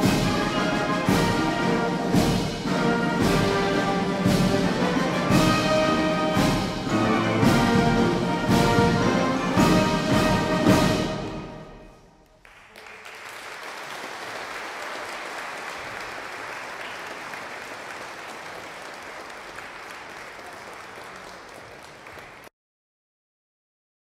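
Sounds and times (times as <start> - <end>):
audience applauding: 12.2 - 22.5.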